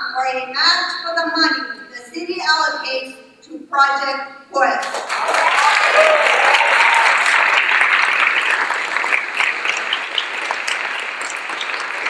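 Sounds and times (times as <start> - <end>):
crowd applauding: 4.8 - 12.0.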